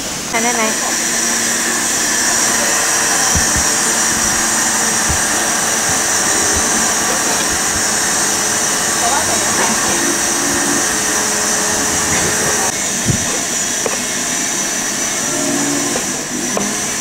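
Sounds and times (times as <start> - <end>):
knife knocking on cutting board: 3.2 - 8.1.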